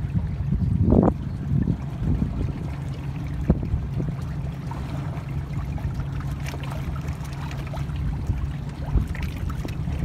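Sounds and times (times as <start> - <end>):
steady low rumble: 0.0 - 10.0
water splashing against hulls: 0.0 - 10.0.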